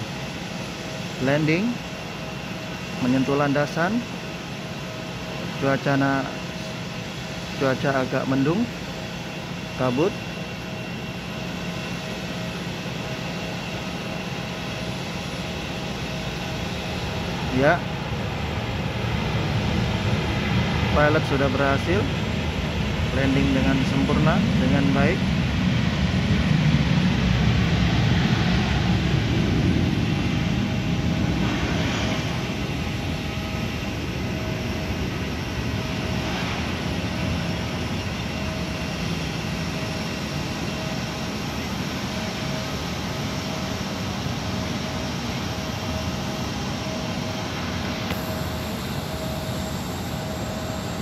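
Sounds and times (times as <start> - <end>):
jet airliner engine rumble: 0.0 - 51.0
faint thin whine: 47.4 - 51.0.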